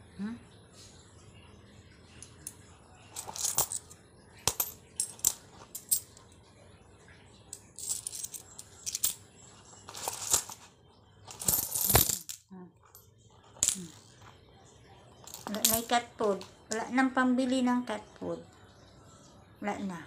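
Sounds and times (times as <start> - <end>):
coins clinking and jingling: 3.2 - 6.2, 7.5 - 10.7, 11.3 - 14.1, 15.2 - 16.0.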